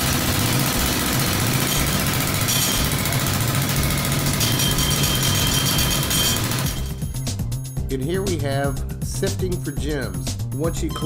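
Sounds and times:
pneumatic rock drill running: 0.0 - 7.0.

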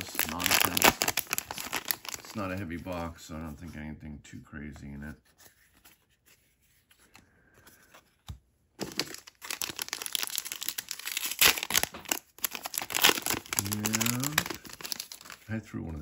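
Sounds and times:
card wrappers crinkling and tearing: 0.0 - 3.1, 8.8 - 16.0.

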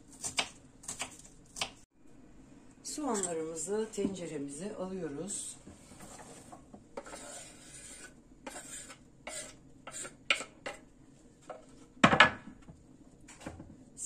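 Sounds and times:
cutting board scraping against pot: 5.9 - 10.8.

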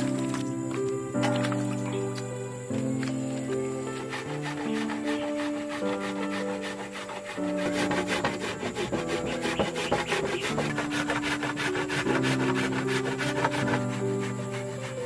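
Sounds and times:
root grated on metal grater: 3.5 - 15.0.

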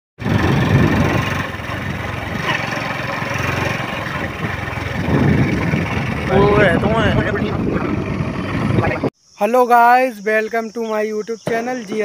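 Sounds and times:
vehicle engine and road noise: 0.2 - 9.1.

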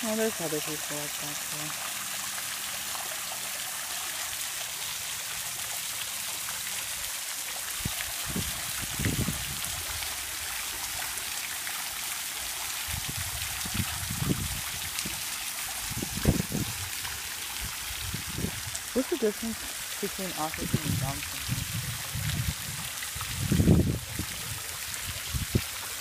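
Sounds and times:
fountain water splashing: 0.0 - 26.0.

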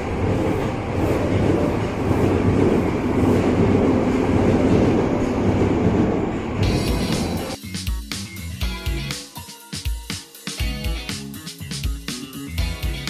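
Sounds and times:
subway train rumbling past: 0.0 - 7.6.

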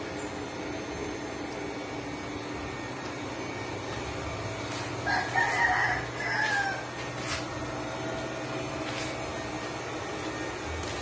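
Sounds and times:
rooster crowing: 5.0 - 7.3.

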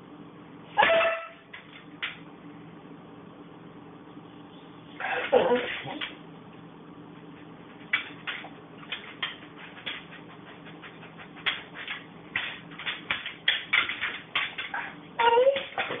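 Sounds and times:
dog sniffing: 7.2 - 13.2
dog claws clicking on wooden floor: 7.7 - 16.0.

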